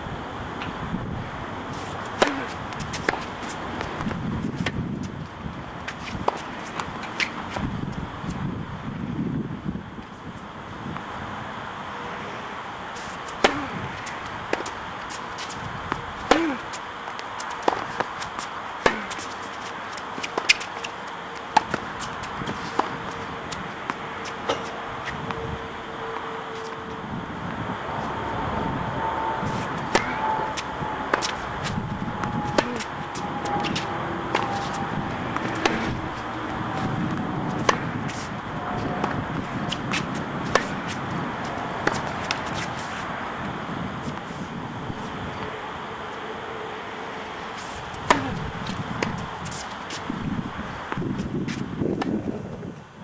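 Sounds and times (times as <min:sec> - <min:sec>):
steady background hiss: 0:00.0 - 0:53.0
racket hitting tennis ball: 0:01.7 - 0:05.1, 0:05.8 - 0:07.7, 0:12.9 - 0:25.3, 0:29.4 - 0:44.4, 0:47.5 - 0:50.2, 0:50.9 - 0:52.4
tennis ball bouncing: 0:01.7 - 0:05.1, 0:05.8 - 0:07.7, 0:13.0 - 0:25.4, 0:29.4 - 0:43.1, 0:47.6 - 0:50.1, 0:50.9 - 0:52.4
ball bouncing on hard court: 0:33.5 - 0:38.3
tennis ball popping off rackets: 0:33.6 - 0:38.3.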